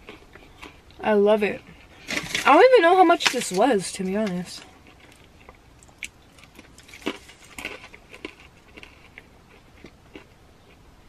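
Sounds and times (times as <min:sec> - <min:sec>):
quiet chewing: 0:00.0 - 0:01.0, 0:04.3 - 0:10.8
wrapper crinkling and clicking: 0:02.1 - 0:08.4.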